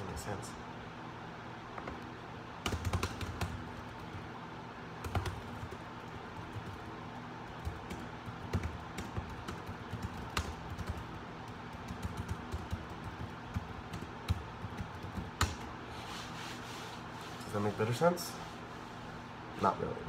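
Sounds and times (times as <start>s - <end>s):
typing on laptop keyboard: 2.6s - 4.3s, 5.0s - 15.7s.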